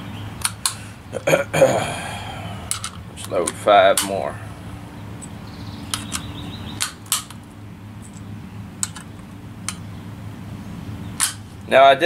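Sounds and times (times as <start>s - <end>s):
cartridges clicking into magazine: 5.9s - 7.4s, 8.8s - 9.1s, 11.2s - 11.4s.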